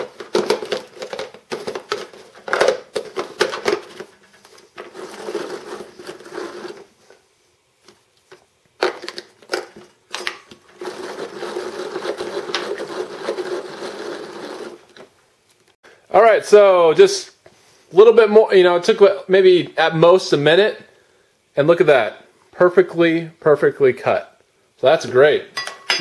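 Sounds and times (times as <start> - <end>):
hand-cranked food chopper whirring: 4.8 - 6.9, 10.7 - 15.0.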